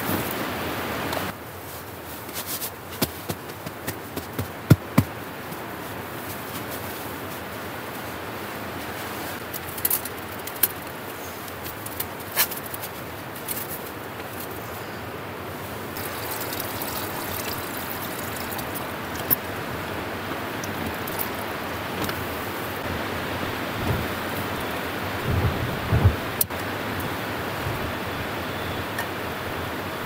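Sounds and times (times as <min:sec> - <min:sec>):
strong wind blowing: 0:17.8 - 0:30.0.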